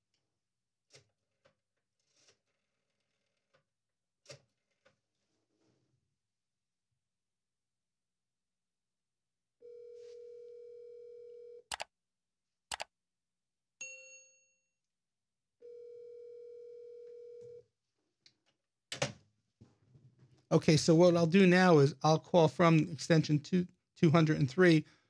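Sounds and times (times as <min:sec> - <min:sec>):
telephone ringback tone: 0:09.6 - 0:11.6, 0:15.6 - 0:17.6.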